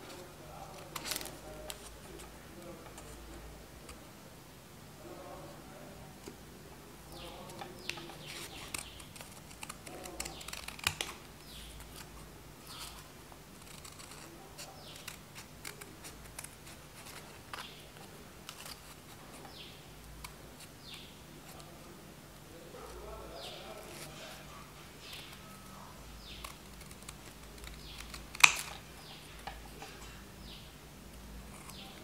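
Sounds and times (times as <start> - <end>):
scissors snipping paper: 0.6 - 3.2, 7.1 - 21.7, 26.2 - 30.2.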